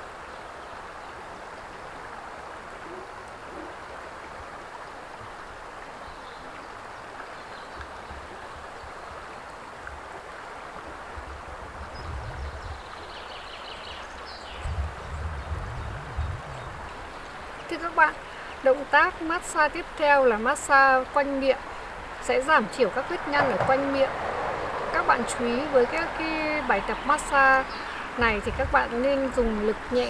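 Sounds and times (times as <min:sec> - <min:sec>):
river water rushing over stones: 0:00.0 - 0:15.9, 0:16.5 - 0:30.0
low rumbling: 0:11.1 - 0:13.2, 0:14.0 - 0:18.4, 0:21.7 - 0:30.0.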